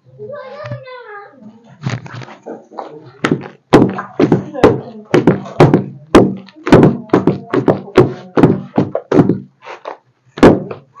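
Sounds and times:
pestle pounding in a mortar: 0:03.2 - 0:09.5, 0:10.4 - 0:10.9.

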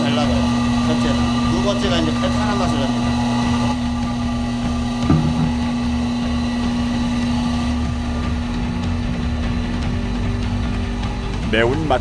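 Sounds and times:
electric motor humming: 0:00.0 - 0:12.0
short knock: 0:05.0 - 0:05.6.

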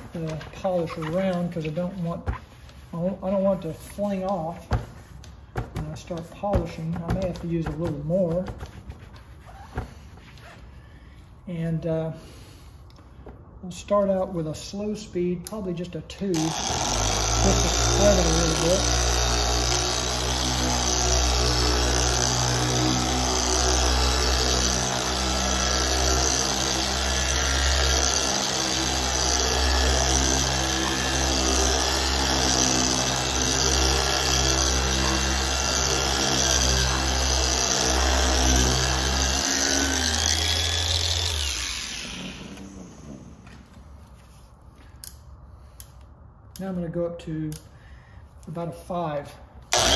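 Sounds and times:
orbital polisher humming: 0:16.4 - 0:43.6.

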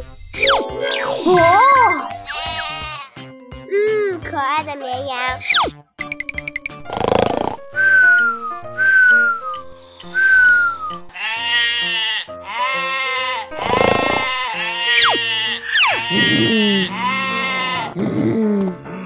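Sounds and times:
light children's music: 0:00.0 - 0:19.0
sheep bleating: 0:02.3 - 0:03.2, 0:14.4 - 0:18.0
cartoon snore whistle: 0:06.9 - 0:08.1, 0:13.6 - 0:14.3
falling whistle effects: 0:07.8 - 0:09.6, 0:10.2 - 0:11.0.

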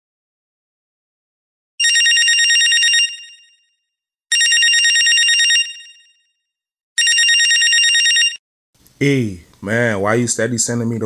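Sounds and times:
telephone ringing: 0:01.8 - 0:03.7, 0:04.3 - 0:06.4, 0:07.0 - 0:08.4.

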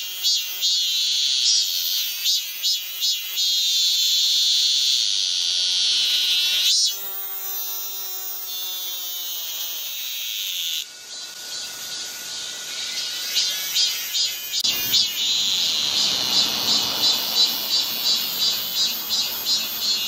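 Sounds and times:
cicadas buzzing: 0:00.0 - 0:20.0.

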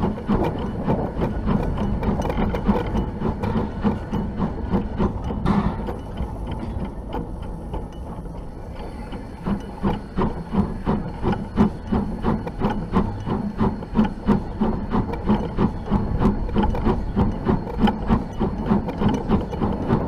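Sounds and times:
steam locomotive knocks and clicks: 0:00.0 - 0:20.0.

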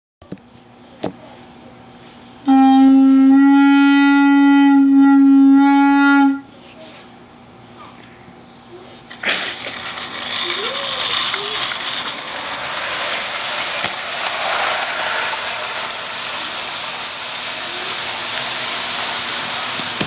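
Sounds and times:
model train whistle blast: 0:02.5 - 0:06.5.

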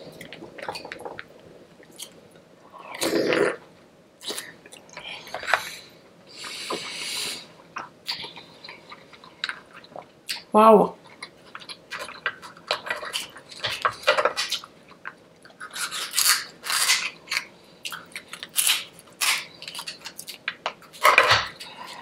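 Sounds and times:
person chewing crunchy food: 0:11.0 - 0:22.0.

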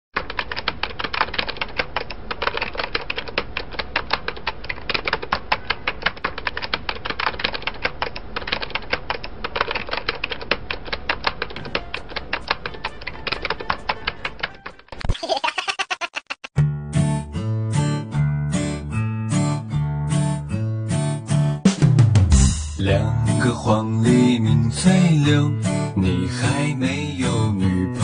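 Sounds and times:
rapid uneven clicking: 0:00.2 - 0:14.9.

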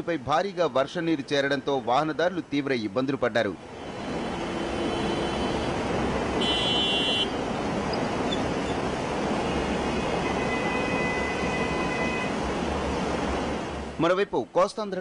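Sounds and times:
traffic on a flooded road: 0:00.0 - 0:15.0
vehicle horn: 0:04.3 - 0:05.8, 0:06.4 - 0:07.3, 0:10.0 - 0:12.4.

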